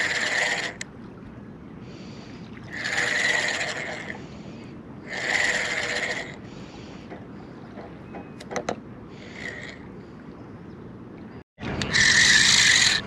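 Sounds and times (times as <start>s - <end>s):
fishing reel gears whirring: 0.0s - 0.8s, 2.7s - 4.2s, 5.0s - 6.4s, 11.8s - 13.0s.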